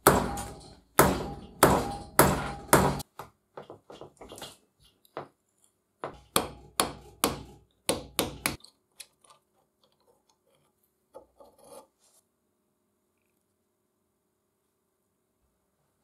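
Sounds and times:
quiet scrapes of rusty parts: 9.8s - 12.4s.

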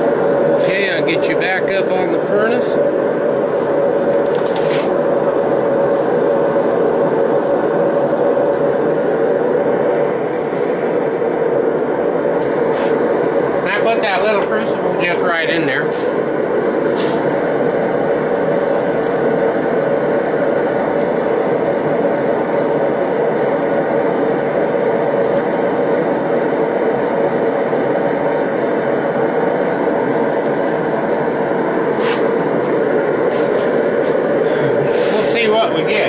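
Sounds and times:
torch flame roaring: 0.0s - 36.0s.

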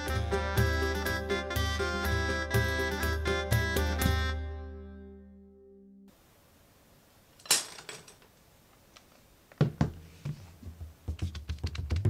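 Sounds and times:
wooden dowels knocking and clattering: 7.4s - 8.4s.

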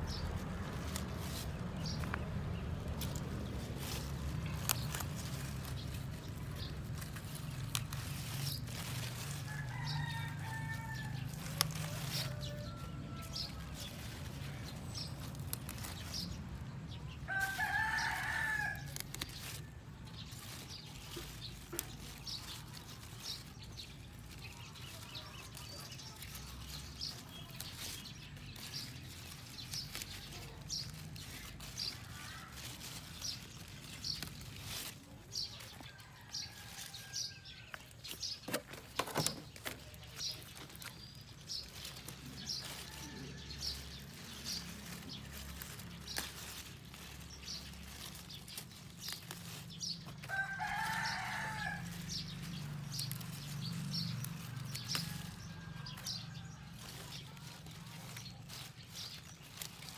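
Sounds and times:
lettuce leaves snapping and rustling: 0.0s - 59.9s
rooster crowing: 9.5s - 11.3s, 11.9s - 13.6s, 50.3s - 52.1s.

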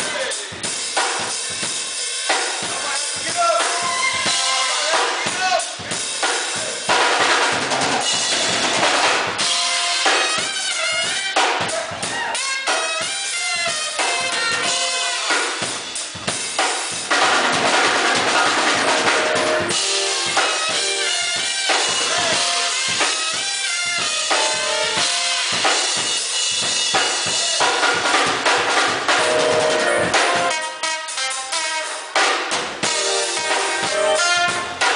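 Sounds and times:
drum kit beat: 0.0s - 34.9s
trumpet: 3.4s - 5.8s, 8.3s - 16.0s, 17.1s - 26.0s, 27.6s - 34.9s
saxophone: 3.7s - 5.1s, 9.4s - 16.0s, 18.1s - 25.6s, 29.1s - 32.2s, 32.8s - 34.9s.

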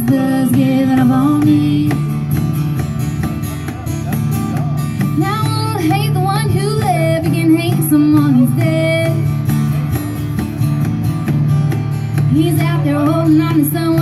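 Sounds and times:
woman singing: 0.0s - 2.3s, 5.1s - 9.4s, 12.3s - 14.0s
acoustic guitars strumming: 0.0s - 14.0s.

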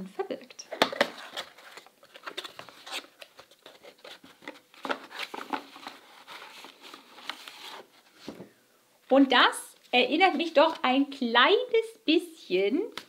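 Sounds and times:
cardboard rustling and scraping: 0.7s - 8.5s.

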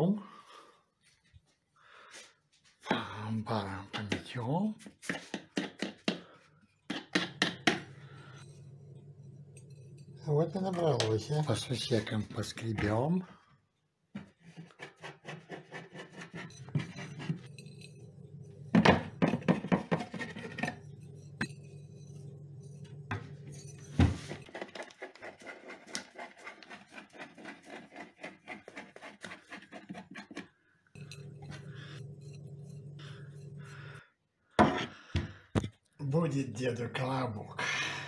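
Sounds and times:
scraping flour from plastic jars: 3.5s - 13.3s, 14.2s - 34.1s
low steady hum: 7.7s - 11.9s, 16.5s - 24.0s, 30.9s - 34.1s.

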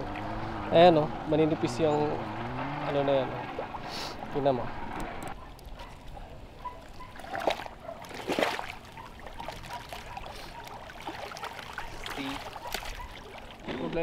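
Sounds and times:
lake water splashing and trickling: 0.0s - 14.0s
loud splashes: 7.3s - 8.9s.

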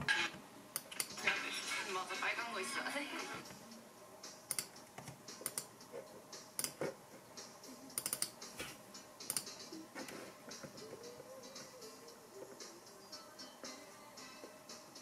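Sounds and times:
keyboard and mouse clicks: 4.5s - 5.7s, 6.6s - 6.9s, 8.0s - 8.4s, 9.2s - 9.5s.

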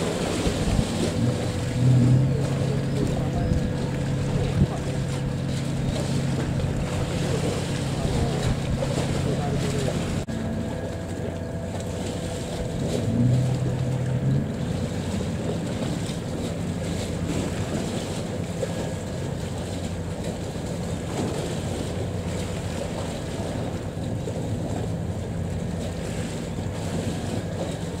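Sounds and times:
wind buffeting microphone: 0.0s - 10.3s
boat engine humming: 0.0s - 28.0s
harbour water washing: 0.0s - 28.0s.

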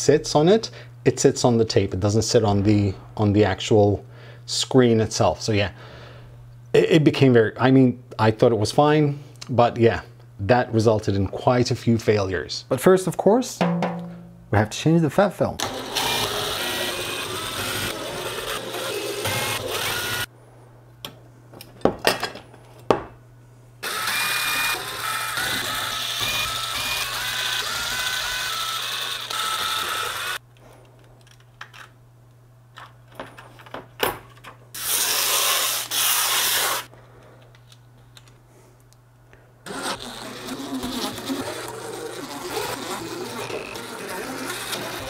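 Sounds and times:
power driver whining: 15.6s - 20.3s, 23.8s - 30.4s, 39.6s - 45.0s.

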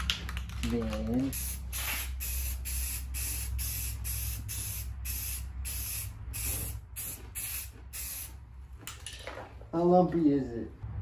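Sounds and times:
spray can hissing: 1.4s - 8.3s.

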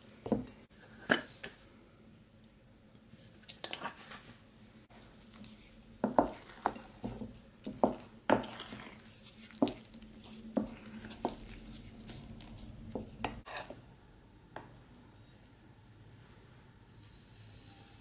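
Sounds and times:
wet batter stirring: 4.9s - 13.8s.

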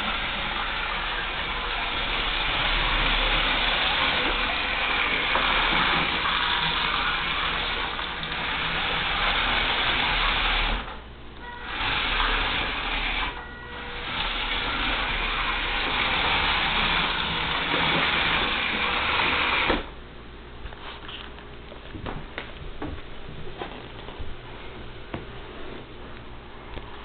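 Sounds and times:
robot vacuum motors running: 11.6s - 19.8s.

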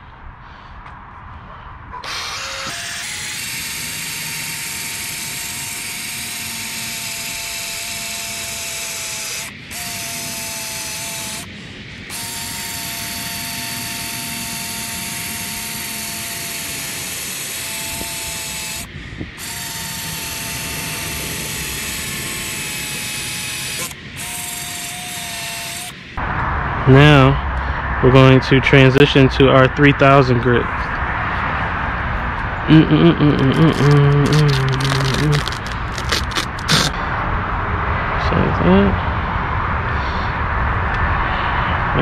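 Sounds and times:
power drill motor whine: 2.0s - 26.1s, 33.6s - 37.0s
sanding disc hiss on plastic: 33.6s - 37.0s.

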